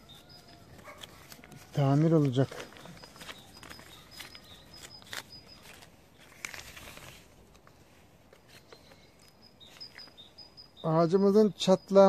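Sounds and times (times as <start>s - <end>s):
bird chirping faintly: 0.0s - 6.4s, 8.4s - 12.0s
plastic sleeve crinkling: 0.0s - 10.2s.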